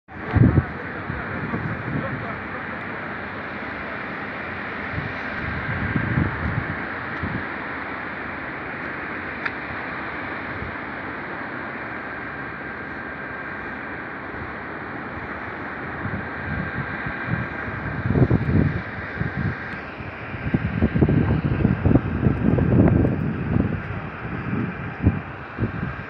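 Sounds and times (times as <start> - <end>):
wind gusts buffeting microphone: 0.1 - 26.0
wind rushing: 4.9 - 7.5, 15.9 - 26.0.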